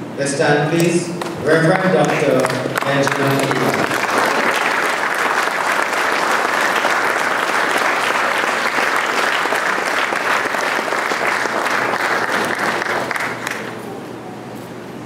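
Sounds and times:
congregation applauding: 1.2s - 13.8s.

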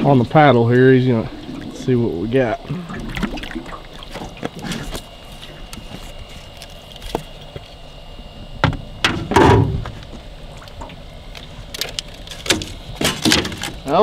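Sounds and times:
water splashing: 0.9s - 5.7s
loud thump: 8.6s - 10.0s
sharp knocks on metal boat: 8.6s - 10.0s.

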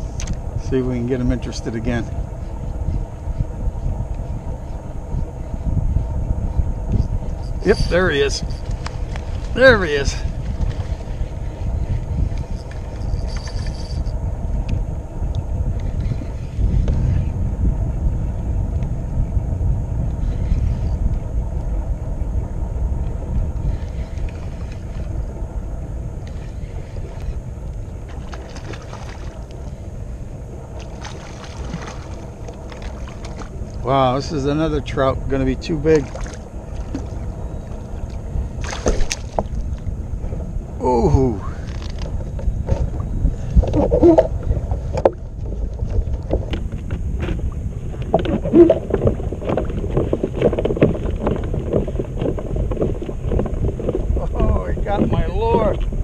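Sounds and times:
wind rumble on microphone: 0.0s - 56.0s
water splashing against kayak hull: 28.0s - 29.9s, 30.5s - 33.9s, 36.0s - 39.8s, 43.7s - 54.2s
fish splashing at surface: 30.8s - 33.6s, 38.6s - 39.4s.

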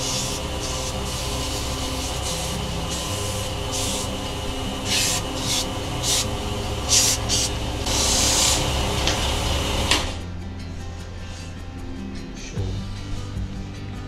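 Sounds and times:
sandpaper hissing on spinning wood: 0.0s - 9.9s
wood lathe motor hum: 0.0s - 10.2s.

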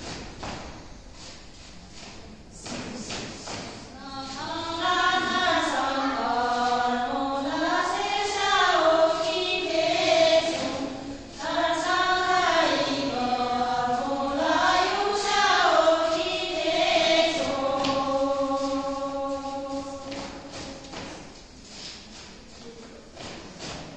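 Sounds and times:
women singing in unison: 2.6s - 21.3s.

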